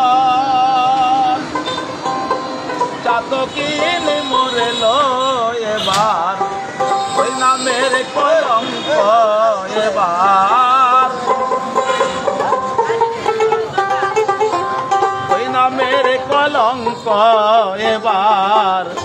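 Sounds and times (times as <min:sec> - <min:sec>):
man singing wavering notes: 0:03.0 - 0:19.0
plucked lute folk melody: 0:10.4 - 0:17.2.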